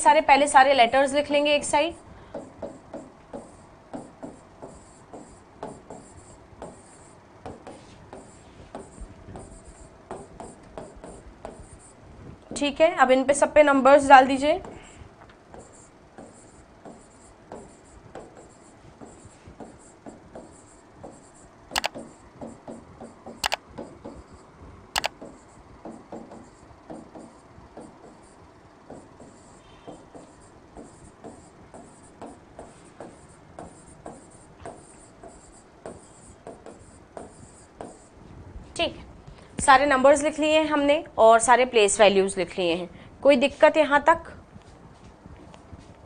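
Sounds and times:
sharp clicks: 21.8s - 22.0s, 23.4s - 23.6s
stylus tapping and scratching: 25.0s - 25.2s.

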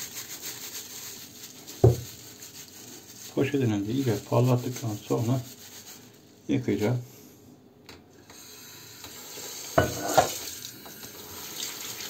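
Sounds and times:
running kitchen tap: 8.4s - 12.0s.

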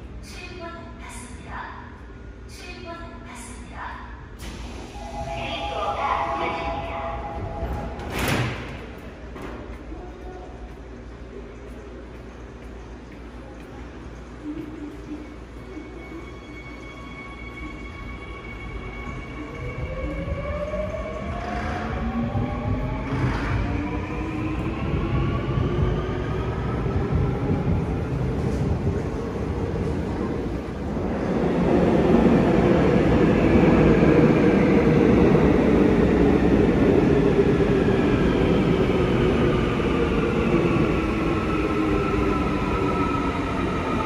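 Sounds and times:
train rumbling on rails: 3.7s - 44.0s.

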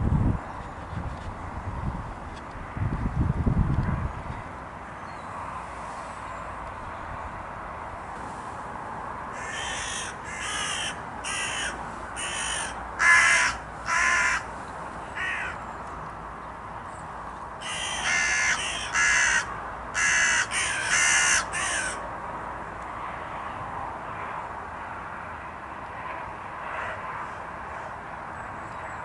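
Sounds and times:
crow cawing: 9.4s - 14.5s, 15.2s - 15.6s, 17.6s - 22.0s.

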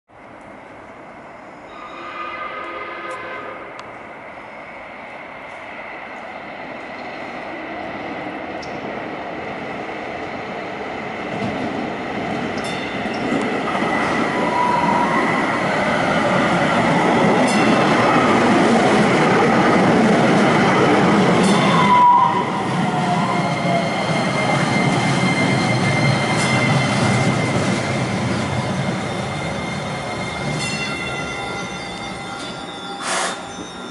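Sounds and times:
train wheels rumbling on rails: 2.4s - 33.9s
wheel squeals: 22.9s - 33.9s.

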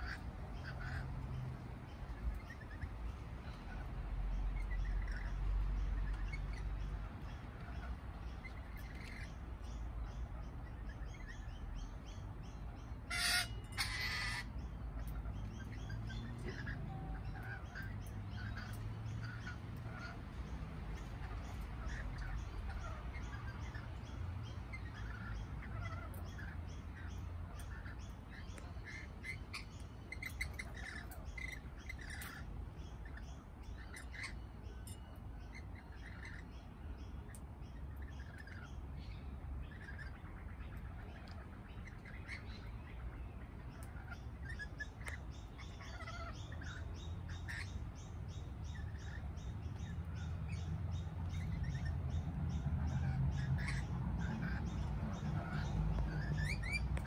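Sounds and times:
birds chirping: 0.0s - 57.0s
loud bird screeches: 13.1s - 14.5s.

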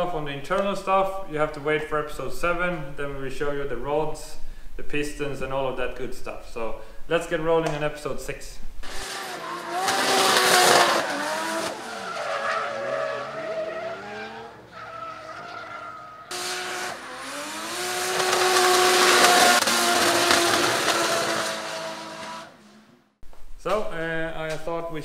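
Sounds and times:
tyres squealing: 8.8s - 22.6s
drift car engine revving: 8.8s - 23.0s.

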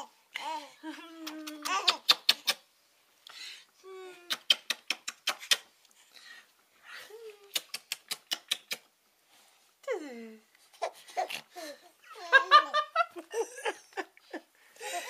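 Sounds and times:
baby laughing: 1.3s - 2.6s.

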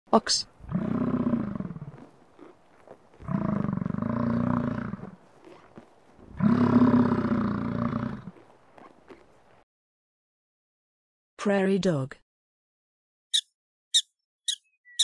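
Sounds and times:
ox lowing: 0.5s - 9.6s.

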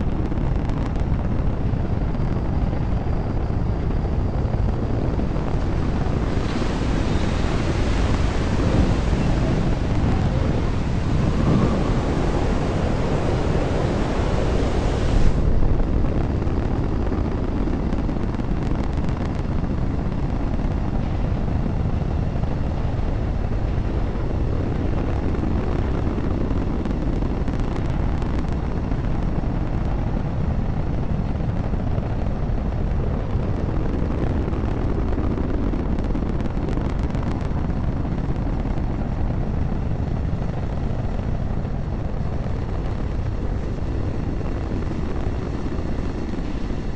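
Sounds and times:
rocket exhaust deep rumble: 0.0s - 46.9s
rocket exhaust hiss: 5.2s - 15.8s.

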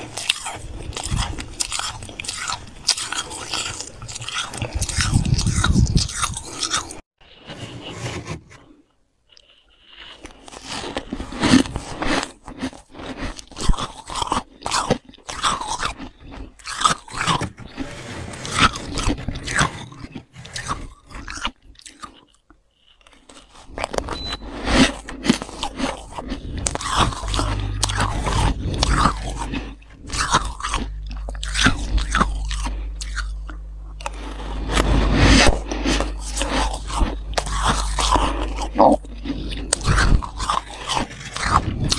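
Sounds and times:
frost crunched and chewed: 0.0s - 7.0s, 9.3s - 17.5s, 18.4s - 41.9s
low steady hum: 0.0s - 7.4s, 23.8s - 41.9s.

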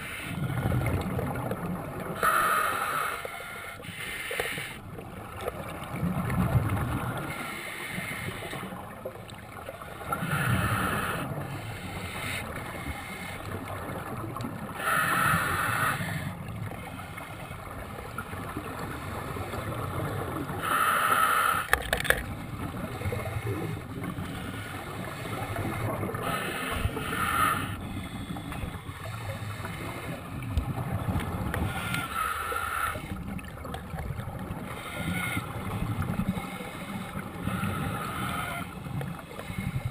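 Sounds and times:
exhaled bubbles rumbling: 0.0s - 2.2s, 4.9s - 7.5s.

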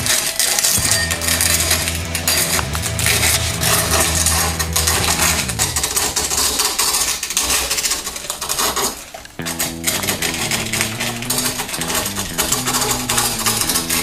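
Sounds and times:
low steady hum: 0.8s - 7.3s.

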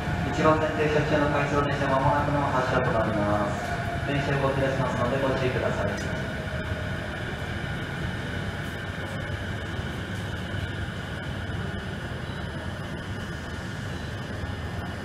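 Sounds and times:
electric train humming: 0.0s - 15.0s.

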